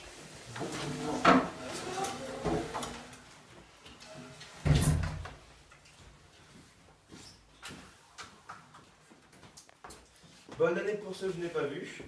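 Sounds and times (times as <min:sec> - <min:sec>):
chairs scraping on tiled floor: 0:00.0 - 0:05.3.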